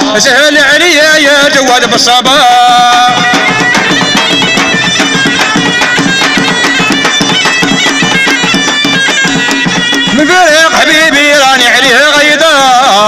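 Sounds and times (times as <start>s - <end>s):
large drums beaten with sticks: 2.4s - 11.2s
shawm playing a melody: 2.4s - 11.9s.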